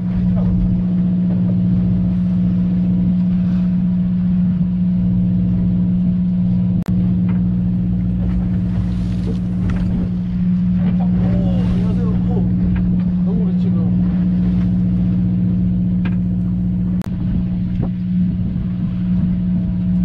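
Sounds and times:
boat engine droning: 0.0s - 20.0s.

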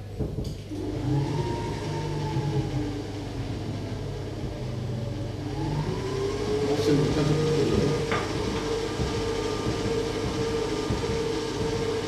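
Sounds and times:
stand mixer motor whirring: 0.0s - 12.0s.

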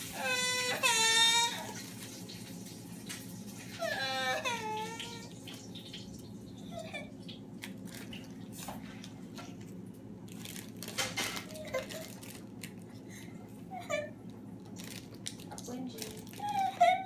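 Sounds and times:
child whimpering: 0.1s - 1.7s, 3.8s - 5.3s, 13.7s - 14.2s, 16.3s - 17.0s
plastic bag rustling: 7.6s - 13.3s, 14.6s - 17.0s
crackers clicking: 10.2s - 13.3s, 14.2s - 16.6s.

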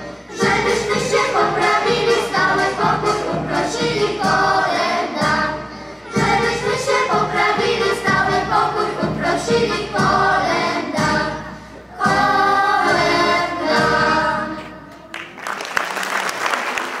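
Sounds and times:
choir singing a carol: 0.0s - 14.9s
piano accordion: 0.0s - 14.9s
audience applause: 14.9s - 17.0s.

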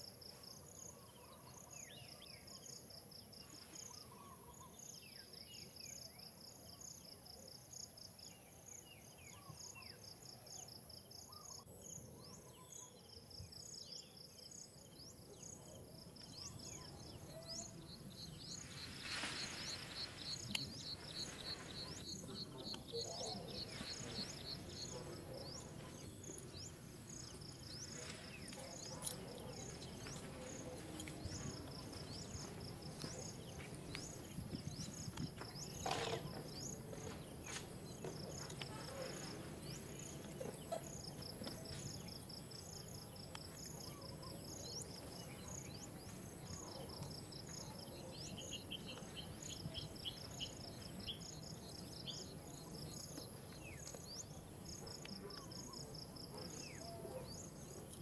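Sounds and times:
insects chirping: 12.7s - 58.0s.

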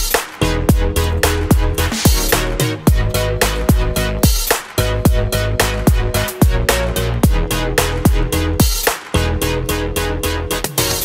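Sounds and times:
electronic music with steady beat: 0.0s - 11.0s.

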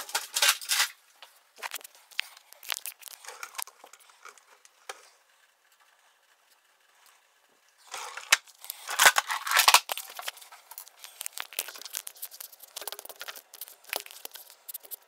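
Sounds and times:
hands clicking and rustling: 8.3s - 15.0s.

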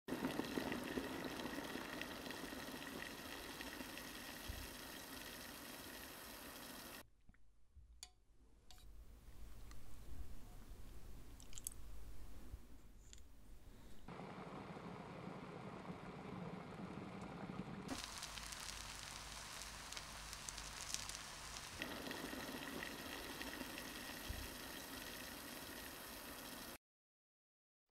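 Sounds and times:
mushrooms sizzling in a frying pan: 0.1s - 7.0s, 17.9s - 26.8s
water bubbling in saucepan: 0.1s - 7.0s, 14.1s - 26.8s
broth pouring through a strainer: 17.9s - 26.8s.

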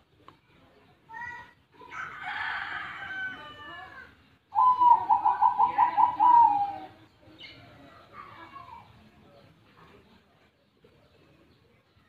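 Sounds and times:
dove cooing: 4.5s - 7.1s
faint bird calls: 4.5s - 8.0s.

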